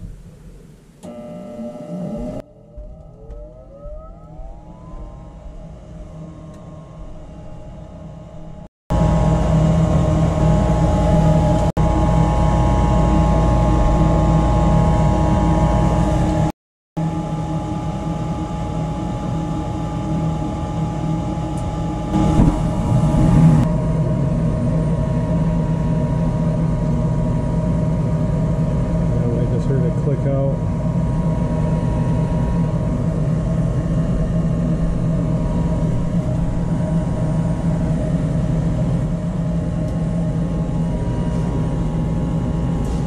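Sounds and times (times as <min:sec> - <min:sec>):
furnace motor whine: 0:00.8 - 0:43.0
low rushing noise: 0:02.4 - 0:16.5.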